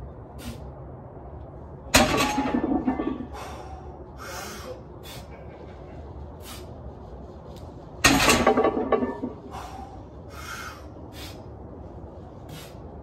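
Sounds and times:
weight plates clanking on ground: 2.0s - 3.6s, 8.0s - 9.8s
short forceful breaths: 3.3s - 5.3s, 9.4s - 11.6s.

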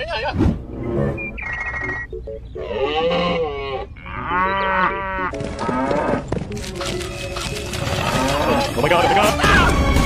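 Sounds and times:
background music: 0.8s - 3.9s, 4.6s - 10.0s
cow mooing: 2.6s - 6.2s.

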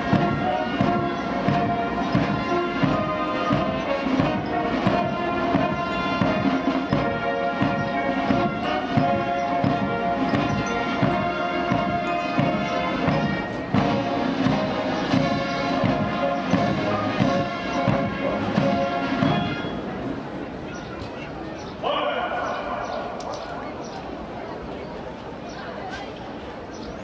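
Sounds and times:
band music with steady drum beat: 0.0s - 19.8s.

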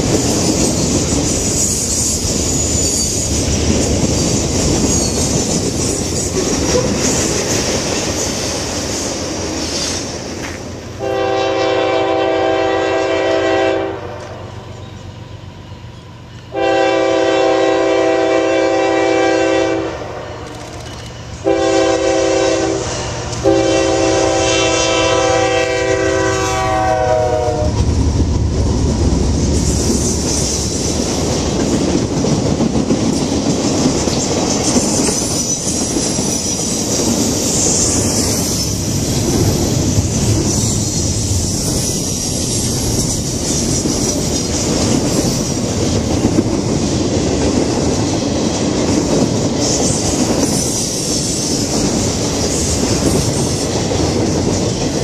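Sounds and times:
wheels clacking over rail joints: 0.0s - 10.9s, 27.8s - 55.0s
train rumbling past: 0.0s - 55.0s
locomotive air horn: 11.0s - 14.5s, 16.5s - 20.8s, 21.4s - 27.8s.

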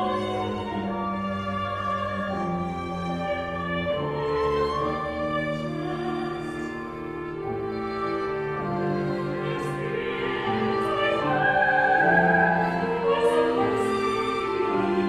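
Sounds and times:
chamber ensemble playing: 0.0s - 15.0s
operatic voice singing: 9.3s - 15.0s.

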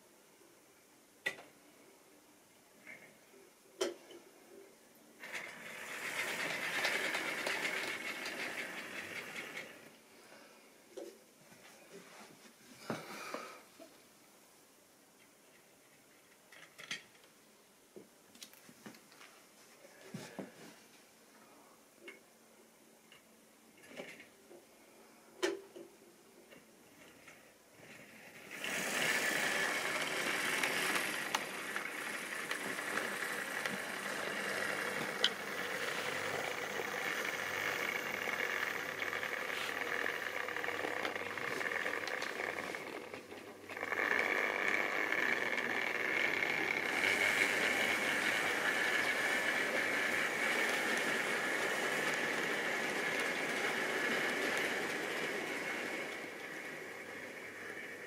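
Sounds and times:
model train wheels rattling: 5.2s - 10.0s, 27.0s - 58.0s.

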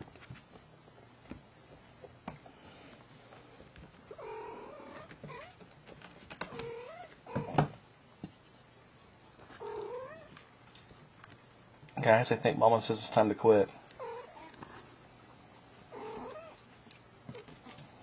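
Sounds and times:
cats yowling: 15.9s - 16.6s.

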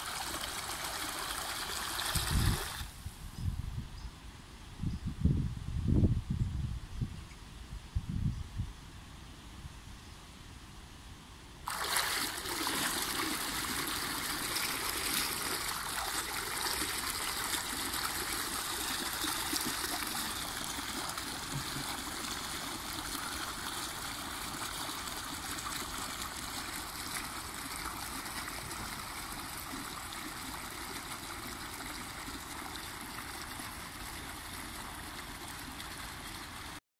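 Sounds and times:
pool cleaner jetting water: 0.0s - 2.9s, 11.7s - 36.8s.

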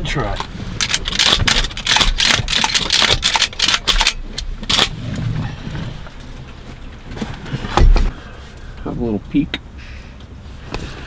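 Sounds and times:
clothing and gear rustling: 4.9s - 8.6s.

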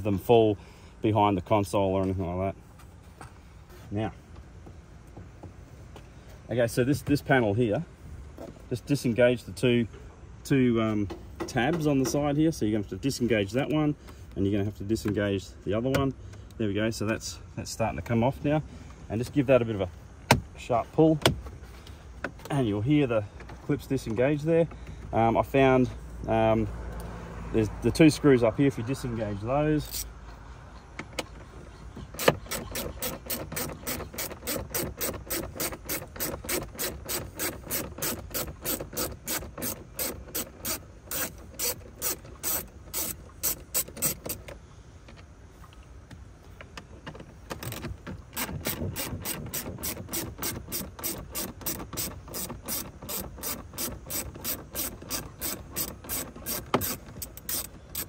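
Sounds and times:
hand ratchet clicking: 32.1s - 44.6s, 47.5s - 58.0s.

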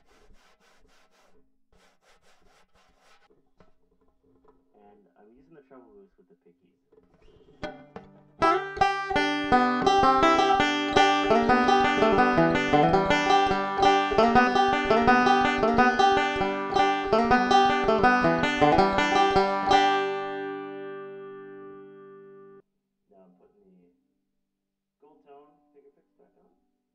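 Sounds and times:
banjo fingerpicking: 6.9s - 22.6s
banjo chord ringing: 7.6s - 22.6s.

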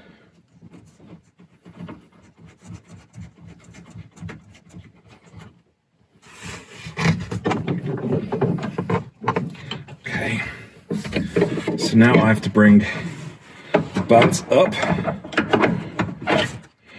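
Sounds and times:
faint clicks and rubbing: 0.1s - 5.8s, 6.4s - 16.8s
plastic trim rubbing and scraping: 0.1s - 16.8s.

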